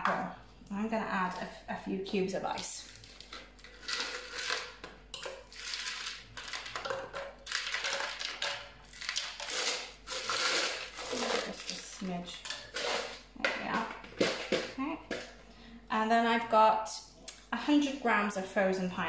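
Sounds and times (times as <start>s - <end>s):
ice cubes clattering into bottle: 2.9s - 13.2s.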